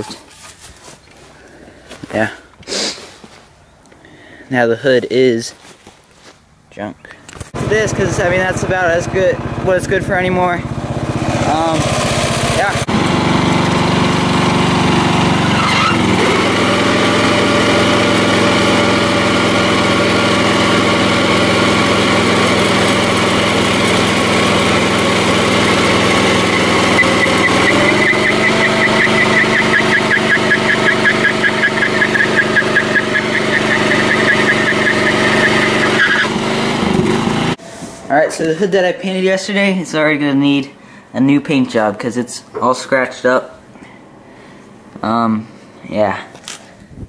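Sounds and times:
lawn mower engine revving: 7.5 - 37.7
tires squealing: 14.7 - 36.6.

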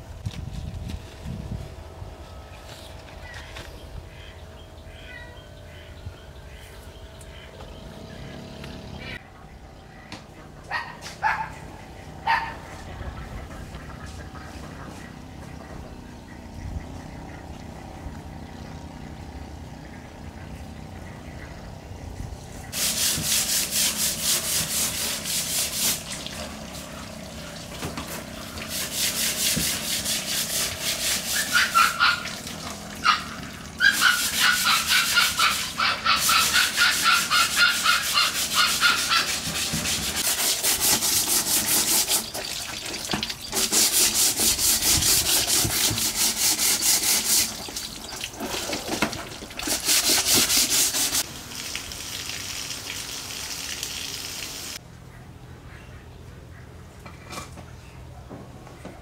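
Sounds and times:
brush scrubbing wet bamboo mat: 22.7 - 51.3
running tap water: 25.1 - 29.3, 30.8 - 34.0, 41.8 - 43.8, 46.6 - 54.8.

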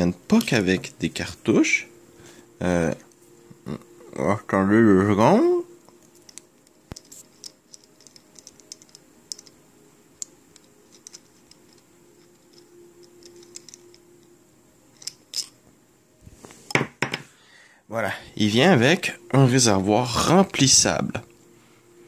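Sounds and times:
faint steady hum: 0.0 - 22.0
small hard objects clicking: 6.2 - 9.6.

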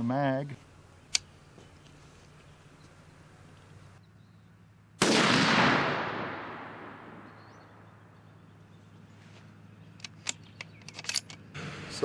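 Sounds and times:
rifle shot: 5.0 - 7.5.

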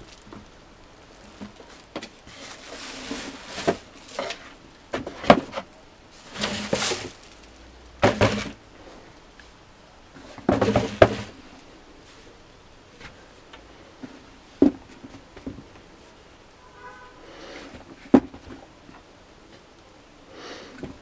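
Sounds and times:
plastic wrapping rustling: 0.0 - 8.6
box and boots knocking: 8.0 - 8.6.

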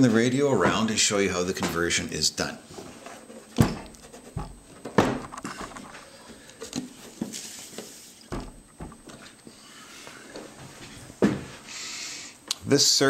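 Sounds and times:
wooden cabinet knocks and bumps: 3.6 - 5.5, 8.3 - 9.2, 11.2 - 11.5.

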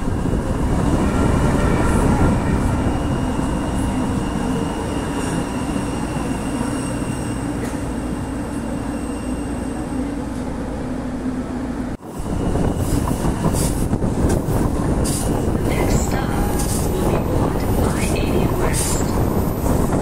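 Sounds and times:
light rail train rumbling: 0.0 - 20.0
rushing wind: 0.0 - 20.0.

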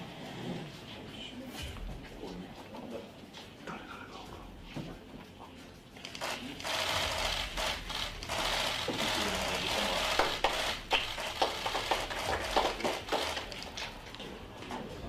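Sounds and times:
camera shutters clicking: 6.0 - 13.9.

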